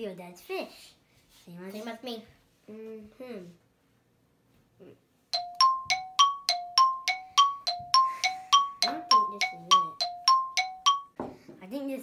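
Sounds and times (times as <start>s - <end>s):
two-note bell-like chime: 5.4s - 11.1s.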